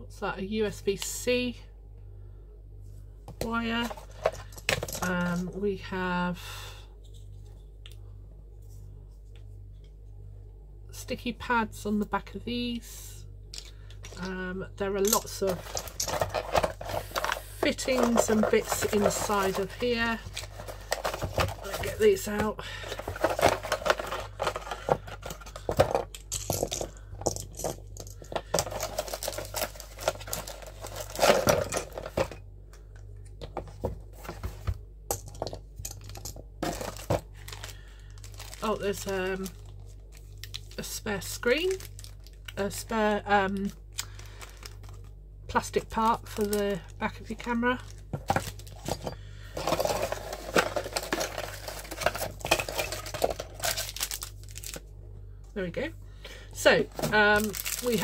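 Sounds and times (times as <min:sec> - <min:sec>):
hard plastic pieces clicking and clattering: 0:15.0 - 0:22.0, 0:22.8 - 0:32.4, 0:48.1 - 0:54.8
packaging rustling: 0:15.2 - 0:32.4, 0:35.4 - 0:40.8, 0:41.6 - 0:42.6, 0:44.0 - 0:45.1, 0:47.8 - 0:54.9, 0:56.8 - 0:58.0.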